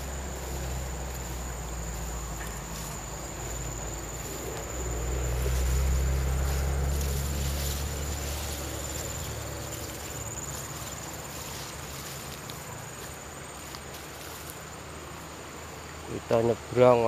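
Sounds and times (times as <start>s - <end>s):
rustling of walking through grass: 0.0s - 15.9s
insects trilling: 0.0s - 17.0s.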